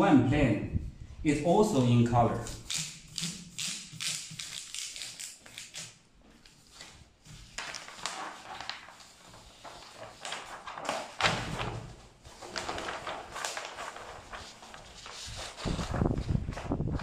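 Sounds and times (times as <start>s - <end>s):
stiff paper rustling and crackling: 4.0s - 17.0s.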